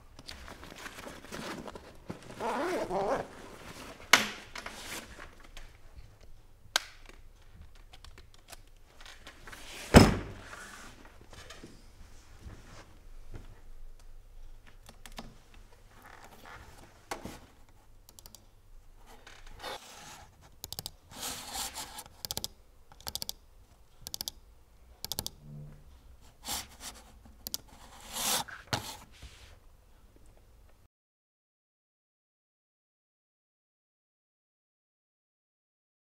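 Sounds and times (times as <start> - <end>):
computer keyboard typing: 18.1 - 18.4, 20.6 - 21.0, 21.9 - 23.4, 24.0 - 24.4, 25.0 - 25.4.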